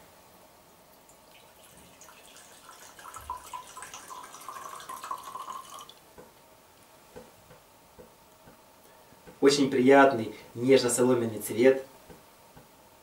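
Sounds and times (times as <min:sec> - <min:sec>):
liquid pouring into a glass: 0:01.1 - 0:06.0.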